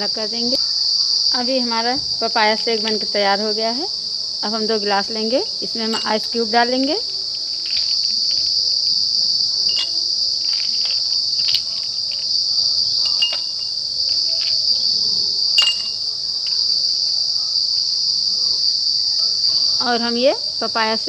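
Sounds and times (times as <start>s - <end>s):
high-pitched insect chorus: 0.0s - 21.0s
ice clinking in glass: 5.8s - 6.4s, 9.7s - 12.2s, 13.0s - 14.6s, 15.6s - 16.6s.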